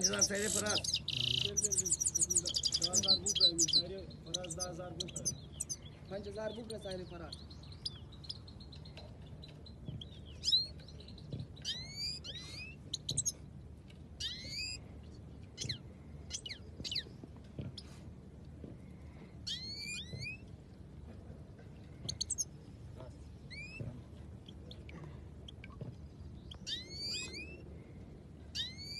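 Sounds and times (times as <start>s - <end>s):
goldfinches chirping: 0.0s - 13.4s, 14.2s - 14.8s, 15.6s - 17.1s, 19.4s - 20.4s, 22.0s - 22.5s, 25.5s - 27.6s
steady low hum: 0.0s - 28.9s.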